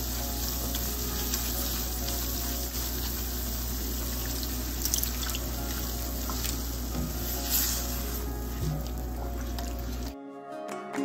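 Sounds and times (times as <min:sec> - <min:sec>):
water sizzling in a hot pan: 0:00.0 - 0:10.2
spatula scraping a pan: 0:06.3 - 0:10.2.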